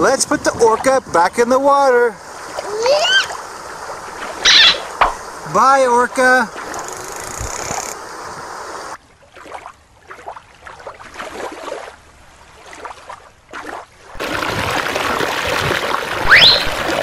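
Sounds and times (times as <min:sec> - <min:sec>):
stream running over rocks: 0:00.0 - 0:09.0, 0:14.0 - 0:17.0.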